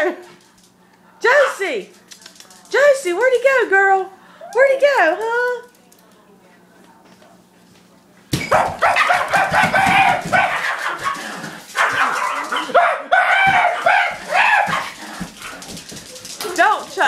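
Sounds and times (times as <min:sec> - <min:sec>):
small dog barking and yapping: 0:08.5 - 0:11.2, 0:11.8 - 0:15.0.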